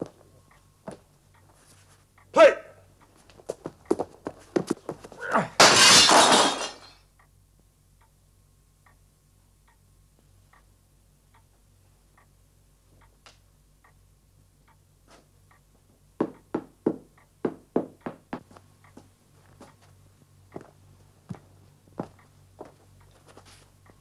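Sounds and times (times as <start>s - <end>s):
glass breaking crash: 5.6s - 7.0s
faint light ticks: 7.1s - 8.2s, 8.8s - 14.0s, 14.6s - 15.7s.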